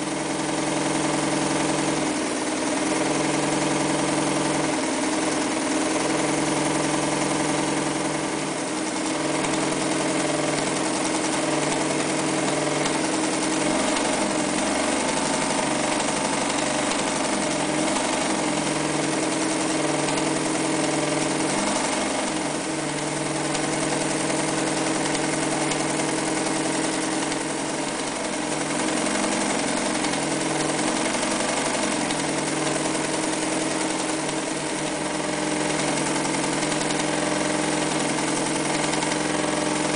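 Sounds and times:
sewing machine running: 0.0s - 39.9s.

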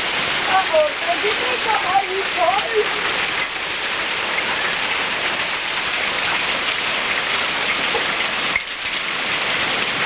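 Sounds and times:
hail and heavy rain: 0.0s - 10.0s.

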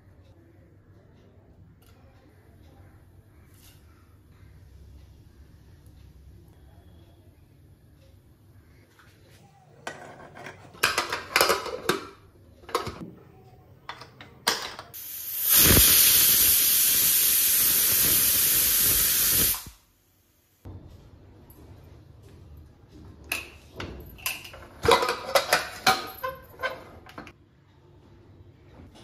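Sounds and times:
pressure cooker lid clattering: 10.8s - 12.1s, 24.8s - 26.8s
pressure cooker steam hissing: 15.0s - 19.8s.

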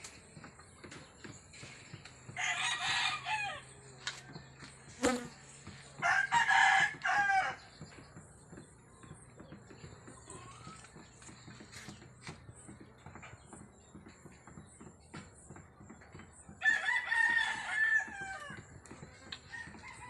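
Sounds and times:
rooster crowing: 2.4s - 3.6s, 6.0s - 7.6s, 16.6s - 18.6s.

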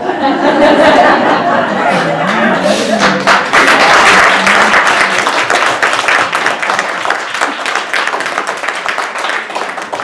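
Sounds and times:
audience applauding: 2.3s - 10.0s.

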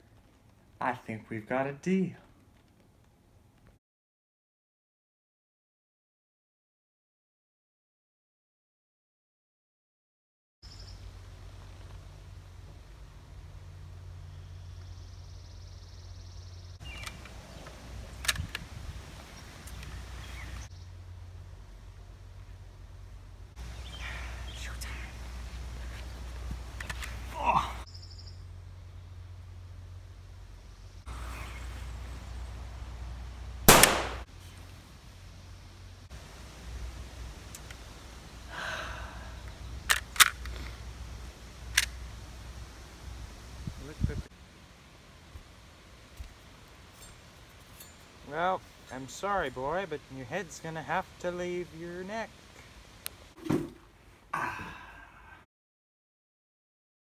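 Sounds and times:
low outdoor hum: 0.0s - 3.8s, 10.6s - 55.5s
birds chirping: 10.6s - 34.7s, 36.6s - 44.2s
rifle mechanical clicks and clacks: 18.2s - 18.6s, 39.9s - 40.5s
rifle mechanism clicks: 33.7s - 34.2s, 39.9s - 40.5s.

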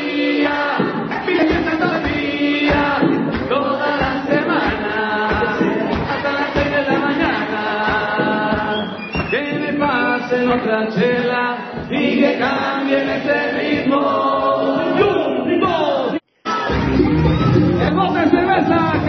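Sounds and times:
voices singing over a beat: 0.0s - 16.7s.

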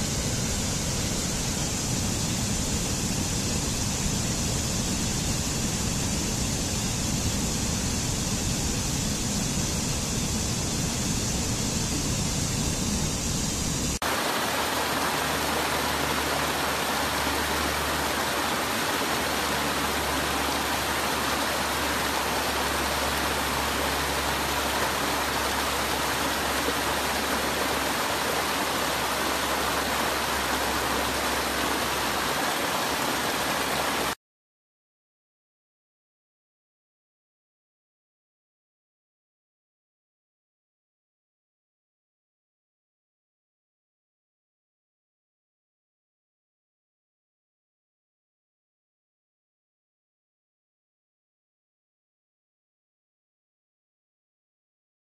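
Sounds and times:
stream cascading over rocks: 14.0s - 34.2s.

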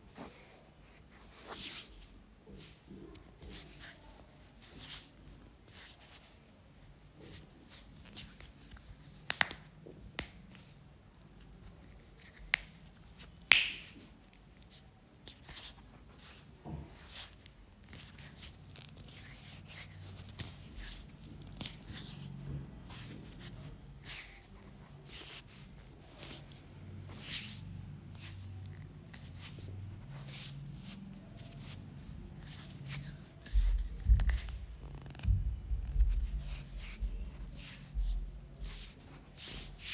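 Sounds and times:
hands rubbing hair and skin: 12.2s - 14.1s.

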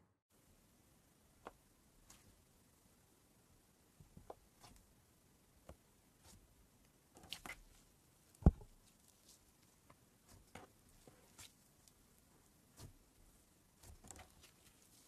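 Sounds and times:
slime squishing: 7.2s - 15.0s.

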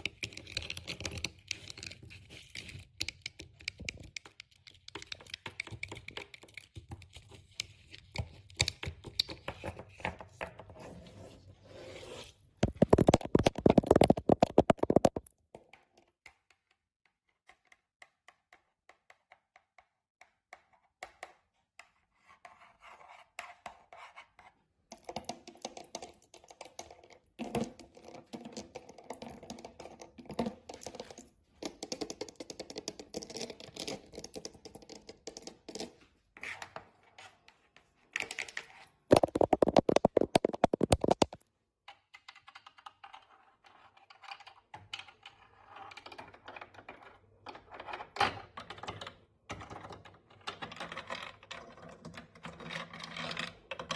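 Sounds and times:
nails tapping and scratching: 12.6s - 15.3s, 39.1s - 41.4s.

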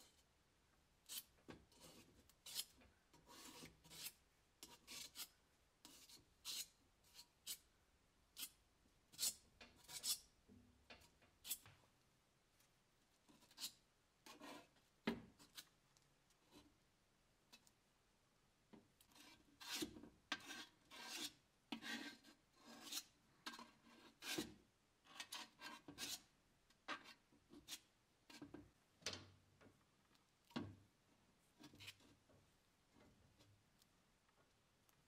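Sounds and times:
spreader scraping filler on metal: 1.1s - 7.6s.

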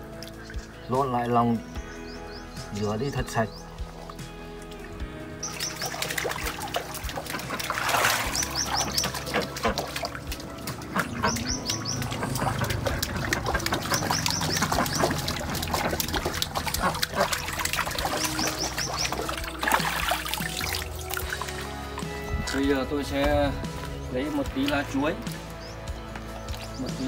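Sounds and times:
water sloshing and splashing: 4.0s - 27.0s
small bird chirping: 5.4s - 6.4s, 8.2s - 9.6s, 11.0s - 19.6s.

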